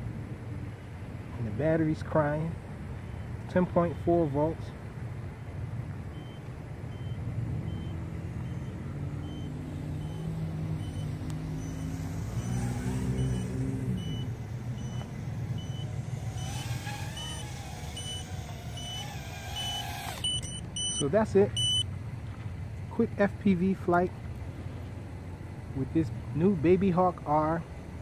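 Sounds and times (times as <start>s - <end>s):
wavering whine: 5.3s - 22.0s
low-battery alarm beeping: 6.1s - 21.9s.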